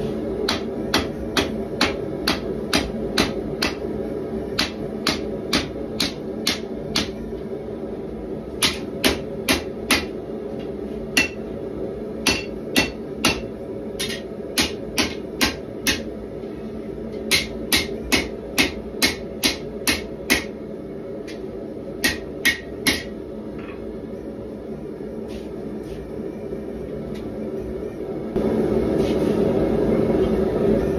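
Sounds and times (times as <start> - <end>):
gas forge humming: 0.0 - 30.9
hammer striking hot steel on anvil: 0.4 - 7.3, 8.6 - 11.6, 12.2 - 16.1, 17.2 - 20.6, 21.2 - 23.2.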